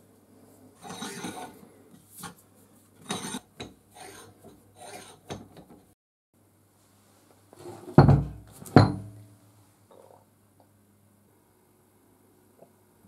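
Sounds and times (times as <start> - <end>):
vise jaw scraping: 0.8 - 1.6, 3.0 - 5.3
vise thump on wooden workbench: 8.0 - 9.0.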